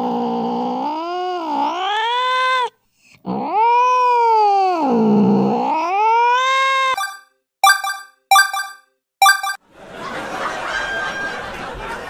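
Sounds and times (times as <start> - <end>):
cat yowling: 5.5 - 6.9.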